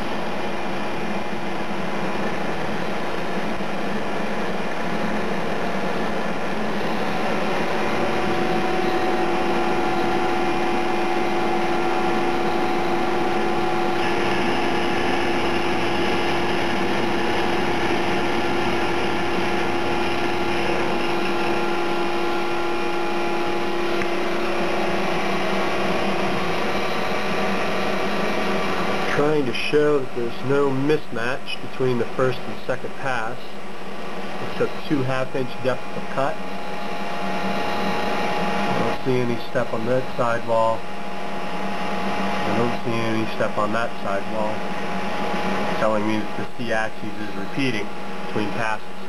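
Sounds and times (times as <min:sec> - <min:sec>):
steady hum: 0:00.0 - 0:49.0
metal machining noise: 0:01.9 - 0:33.6, 0:34.3 - 0:40.8, 0:41.5 - 0:49.0.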